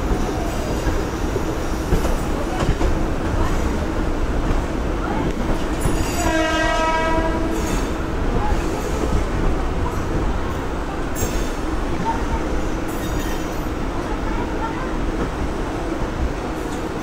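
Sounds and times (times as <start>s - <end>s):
train wheels rumbling on track: 0.0s - 17.0s
train horn: 5.9s - 7.9s.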